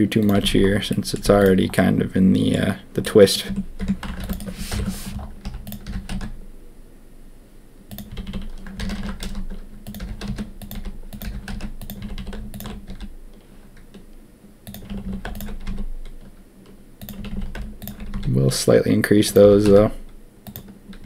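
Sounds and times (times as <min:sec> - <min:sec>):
keyboard keys tapping: 0:03.4 - 0:06.4, 0:07.9 - 0:14.0, 0:14.7 - 0:16.3, 0:17.0 - 0:18.3, 0:19.3 - 0:21.0.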